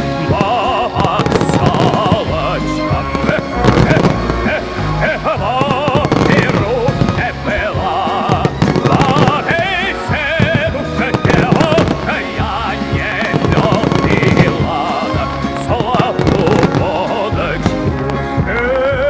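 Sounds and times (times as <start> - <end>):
fireworks bursting and crackling: 0.0 - 19.0
loud music with heavy vibrato: 0.0 - 19.0.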